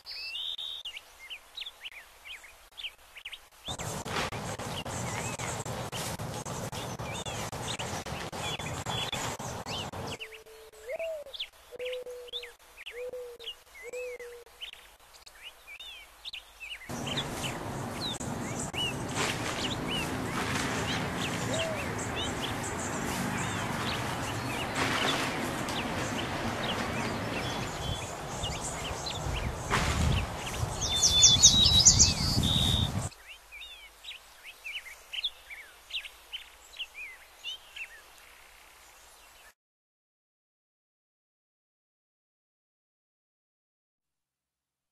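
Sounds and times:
small birds chirping: 0.0s - 39.4s
steady rushing noise: 3.7s - 10.3s, 16.9s - 33.1s.

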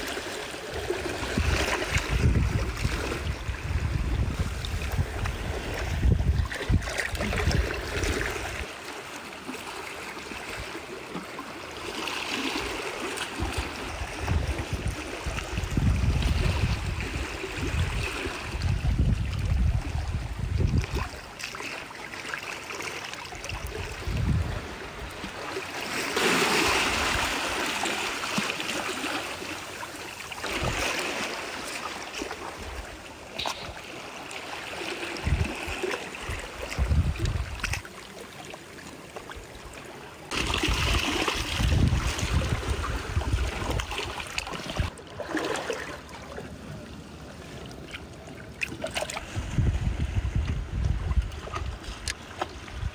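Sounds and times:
seawater sloshing and trickling: 0.0s - 52.9s
water splashing: 0.0s - 52.9s
wind rumble on microphone: 0.7s - 8.7s, 13.4s - 21.3s, 23.4s - 25.3s, 35.1s - 37.8s, 40.3s - 45.0s, 49.1s - 52.9s.

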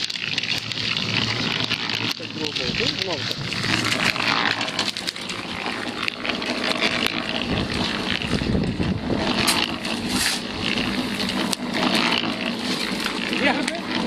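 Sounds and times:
concrete mixer running: 0.0s - 14.0s
steel shovel scraping slag: 9.4s - 13.0s.

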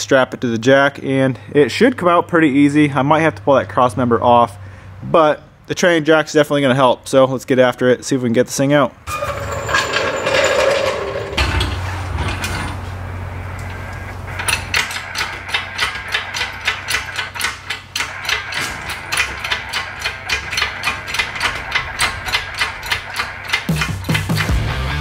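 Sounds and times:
hand ratchet clicking: 14.4s - 24.6s.

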